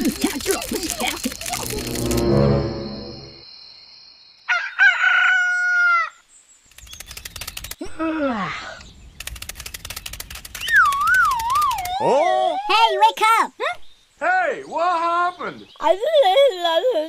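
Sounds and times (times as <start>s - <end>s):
rapid ticking: 0.0s - 2.0s, 6.7s - 7.8s, 9.2s - 12.0s
warbling tone: 1.4s - 3.4s
falling pitched glide: 1.6s - 3.4s
rooster crowing: 4.5s - 6.2s.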